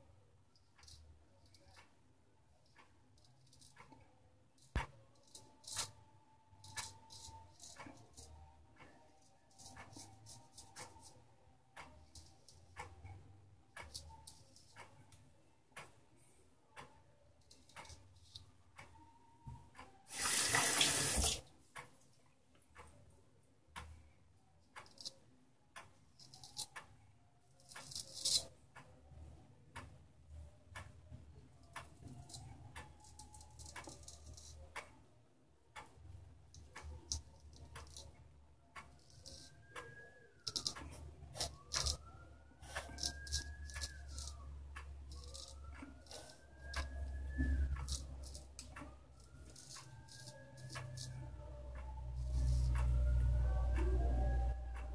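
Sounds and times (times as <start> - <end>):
clock ticking: 0.5 - 16.0, 16.7 - 21.1, 22.8 - 23.1, 23.8 - 24.1, 24.8 - 27.0, 27.6 - 35.1, 35.7 - 54.9
water tap running: 20.1 - 21.4.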